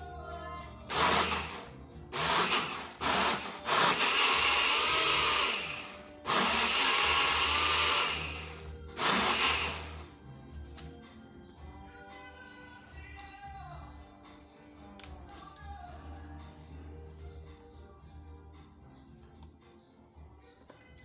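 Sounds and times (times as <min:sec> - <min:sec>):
bottle blender pulsing: 0:00.9 - 0:10.0.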